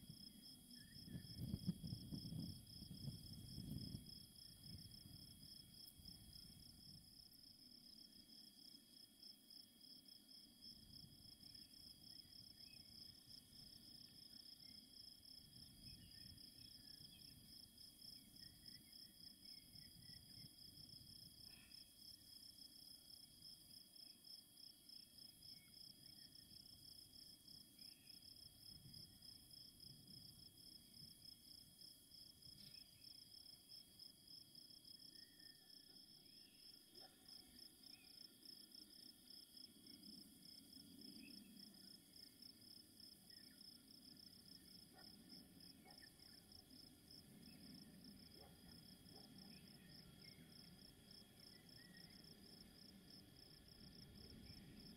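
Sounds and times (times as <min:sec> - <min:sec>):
crickets chirping: 0:00.0 - 0:54.9
wind rumble on microphone: 0:00.8 - 0:07.0.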